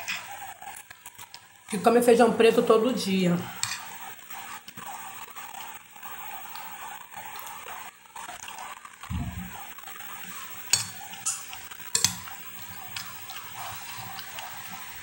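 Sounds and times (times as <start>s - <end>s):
metal spoon scraping glass plate: 3.6s - 4.0s, 10.7s - 14.3s
dull low thump: 9.1s - 9.6s.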